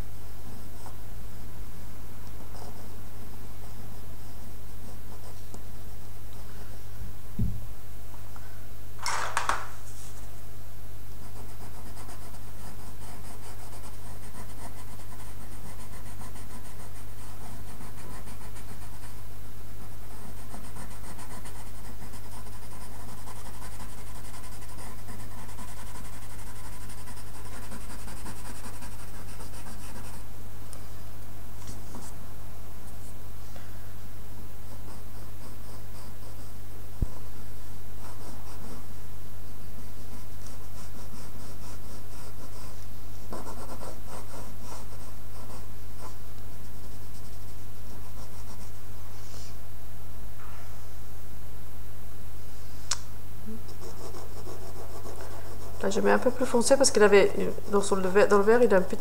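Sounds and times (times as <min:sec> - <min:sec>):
low electrical hum: 0:00.0 - 0:59.0
pencil scratching on paper: 0:02.4 - 0:03.0, 0:03.6 - 0:05.4, 0:11.2 - 0:19.2, 0:19.8 - 0:30.2, 0:34.7 - 0:37.3, 0:38.0 - 0:38.9, 0:40.0 - 0:48.8, 0:53.7 - 0:59.0.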